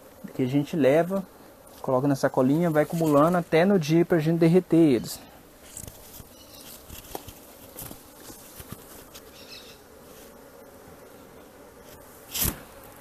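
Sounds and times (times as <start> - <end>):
honey bees buzzing: 0.0 - 13.0
sharp thump: 12.3 - 12.8.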